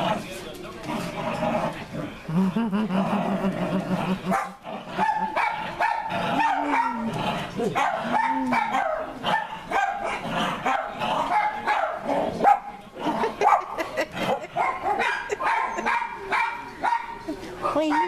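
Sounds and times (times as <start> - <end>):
dog barking and yipping: 4.3 - 7.1, 7.7 - 12.8, 13.4 - 13.8, 14.6 - 18.0.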